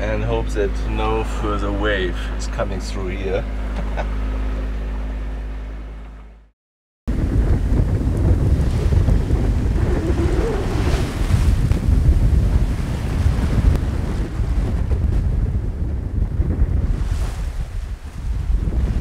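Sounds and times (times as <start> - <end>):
sea waves: 7.1 - 15.4, 16.8 - 19.0
wind buffeting microphone: 7.1 - 19.0.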